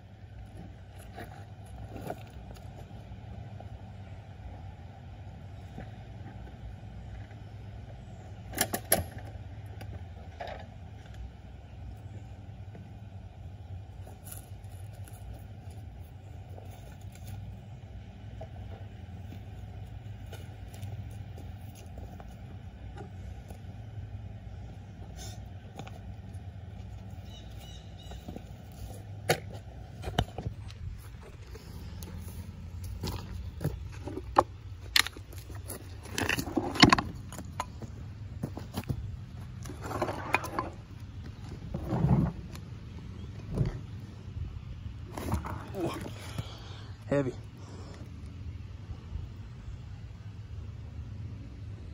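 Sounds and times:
engine idling: 0.0s - 51.9s
low steady rumble: 0.0s - 51.9s
footsteps on loose rocks: 0.4s - 3.0s, 25.6s - 44.1s, 45.0s - 46.7s
rocks knocking and clattering: 32.8s - 42.7s.

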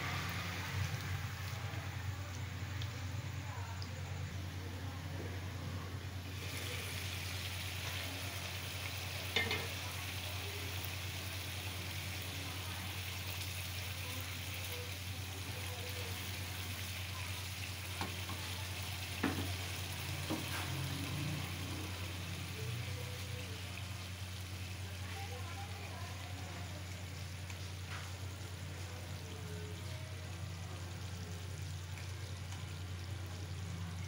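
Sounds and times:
curry bubbling and sizzling: 0.0s - 34.0s
utensils knocking against pan: 9.3s - 9.7s.

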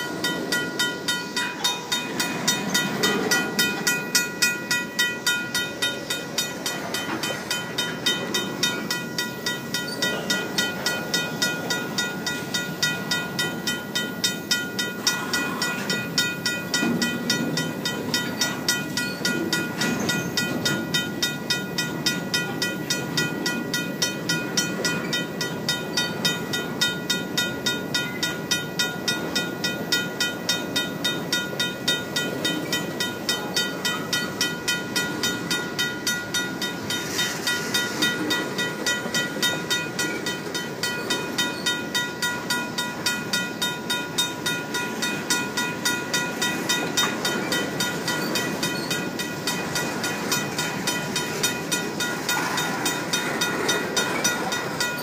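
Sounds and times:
crossing signal bell ringing: 0.0s - 55.0s
train cars rumbling and clattering: 0.0s - 55.0s.

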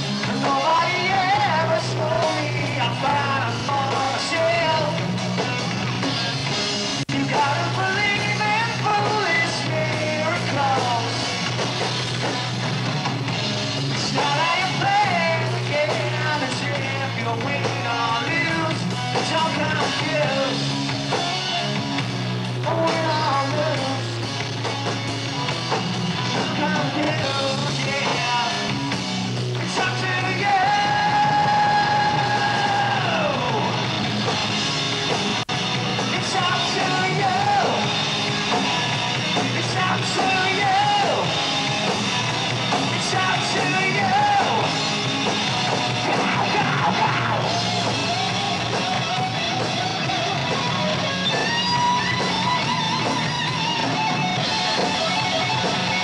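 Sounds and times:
drums: 0.0s - 56.0s
electric guitars: 0.0s - 56.0s
man shouting and singing: 29.6s - 33.8s, 36.0s - 38.0s, 39.5s - 41.4s, 43.0s - 44.8s, 46.0s - 49.3s.

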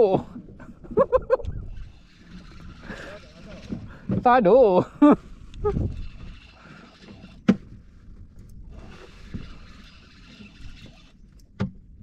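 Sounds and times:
faint water sounds: 0.0s - 12.0s
fishing reel winding: 1.6s - 3.8s, 5.5s - 7.4s, 8.6s - 11.4s.

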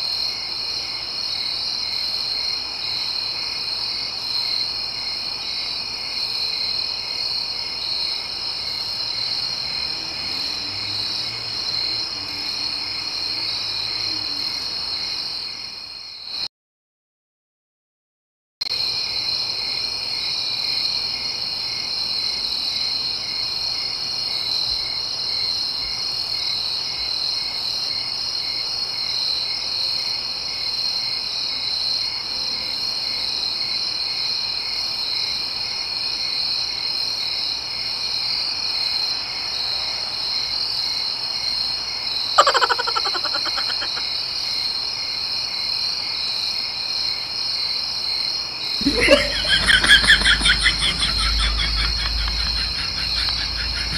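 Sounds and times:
frogs and insects chorus: 0.0s - 16.5s, 18.7s - 53.9s
sound falling in pitch: 48.8s - 53.9s.

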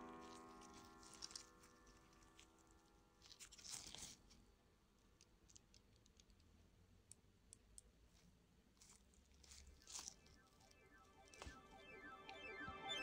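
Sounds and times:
scratchy rustle: 0.1s - 4.4s.

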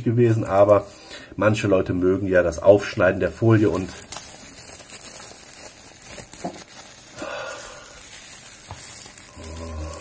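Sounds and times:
plastic film crinkling: 2.3s - 10.0s.

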